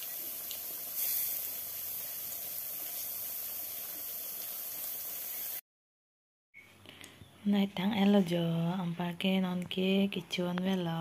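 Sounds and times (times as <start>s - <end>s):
food sizzling in hot oil: 0.0s - 5.6s.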